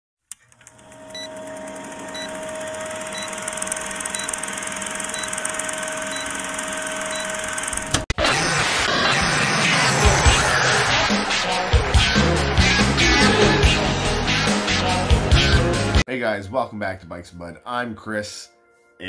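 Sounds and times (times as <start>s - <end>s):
film projector whirring: 0.3s - 8.2s
music: 9.4s - 19.0s.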